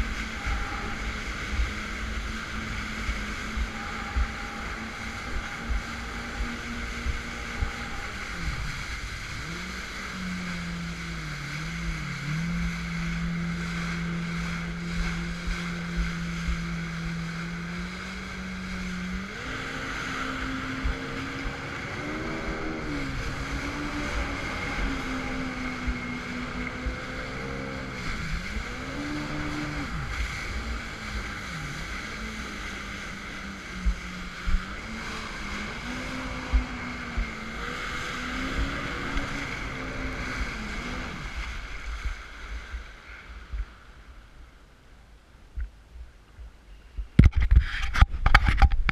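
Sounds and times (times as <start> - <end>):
jet ski engine running: 0.0 - 44.8
rushing water and spray: 0.0 - 48.9.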